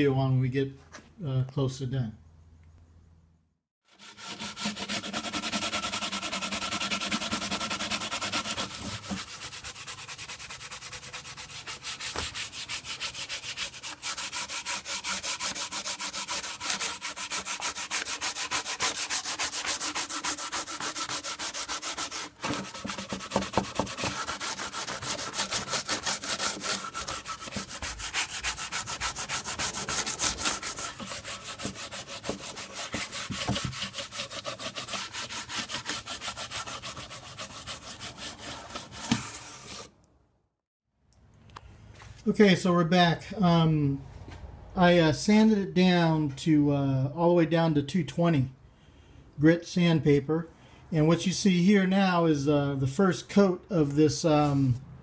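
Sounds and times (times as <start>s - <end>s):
sandpaper rubbing on wood: 3.9s - 39.9s, 54.4s - 54.8s.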